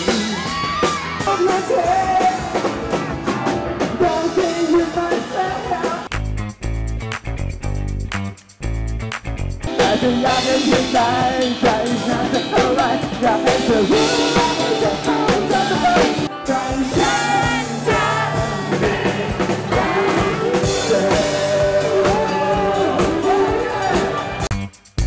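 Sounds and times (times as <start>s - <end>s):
electric guitar: 0.0s - 24.5s
drum kit beat: 0.0s - 25.0s
person singing into a microphone: 0.2s - 2.6s, 4.0s - 6.1s, 9.7s - 24.4s.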